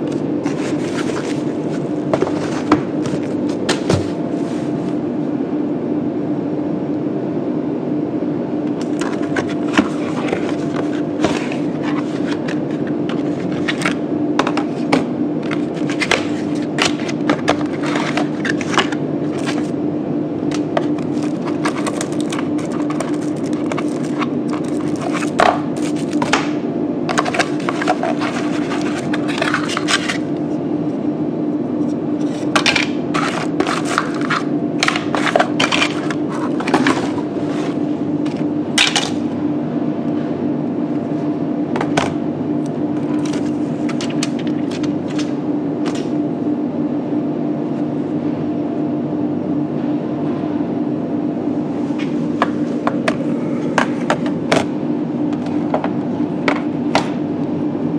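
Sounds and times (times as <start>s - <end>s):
plastic packaging crinkling: 20.8s - 26.3s.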